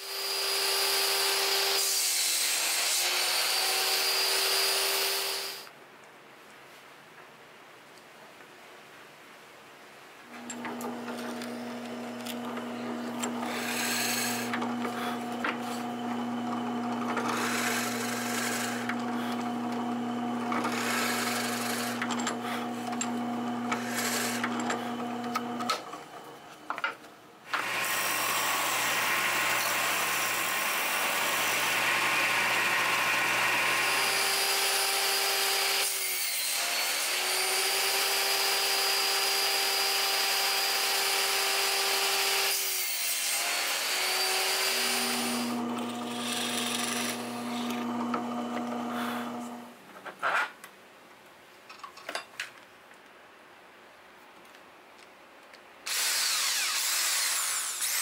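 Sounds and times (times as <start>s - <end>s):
disc sander grinding wood: 10.4s - 26.6s, 27.5s - 38.8s, 40.3s - 49.8s, 55.9s - 58.0s
drill press humming: 10.4s - 26.6s, 27.5s - 35.9s, 44.1s - 49.8s.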